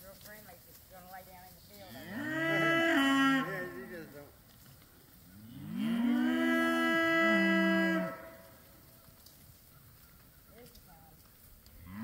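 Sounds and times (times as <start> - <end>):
cattle mooing: 1.8 - 4.0, 5.4 - 8.4.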